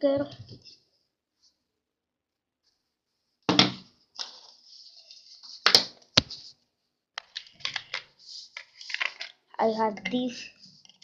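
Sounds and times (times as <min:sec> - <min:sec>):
small plastic clatters: 0:07.2 - 0:11.0.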